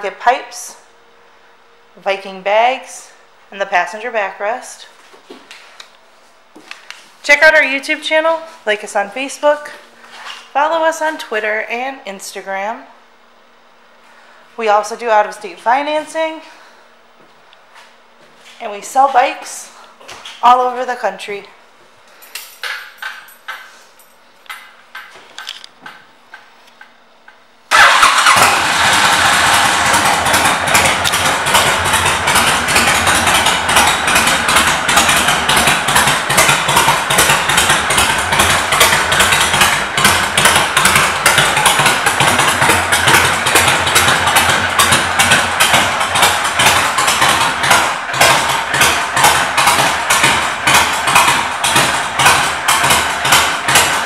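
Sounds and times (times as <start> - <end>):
motorcycle engine idling: 27.7 - 54.0.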